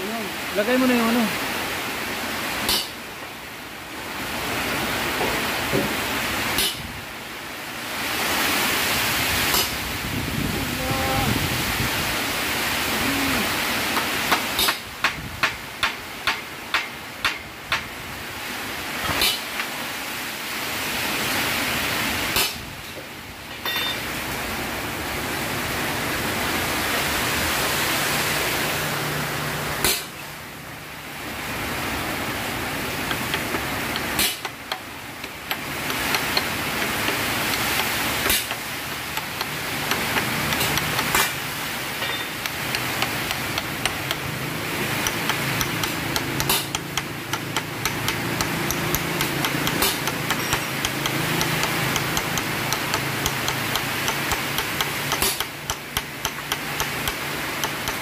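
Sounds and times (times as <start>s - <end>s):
workshop hiss with low hum: 0.0s - 58.0s
light metal clicks and taps: 39.2s - 41.3s, 45.0s - 58.0s.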